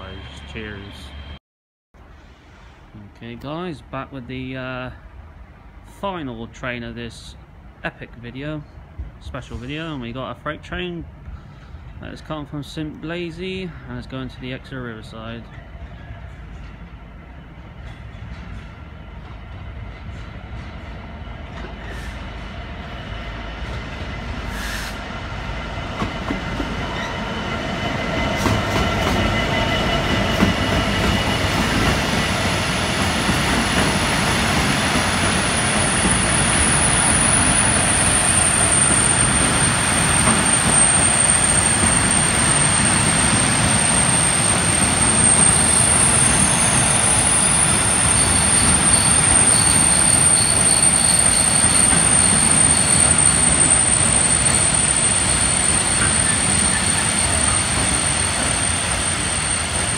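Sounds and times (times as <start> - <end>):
train brakes squealing: 0.0 - 1.4, 21.8 - 22.3, 24.5 - 25.0, 26.8 - 59.9
diesel locomotive rumble: 2.0 - 59.9.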